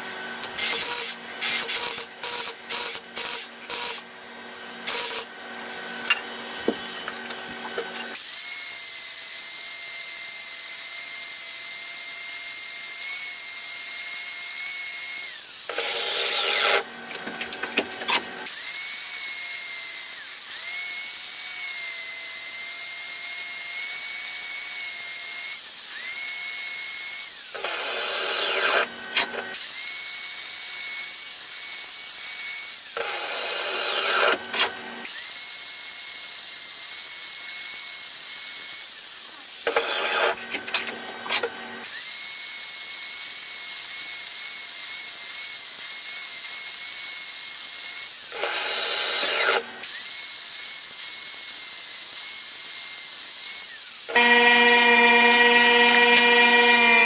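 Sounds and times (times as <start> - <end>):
angle grinder grinding steel: 15.6 - 16.9, 27.1 - 29.5, 32.6 - 34.7, 39.3 - 40.5, 48.3 - 49.7, 54.0 - 57.0.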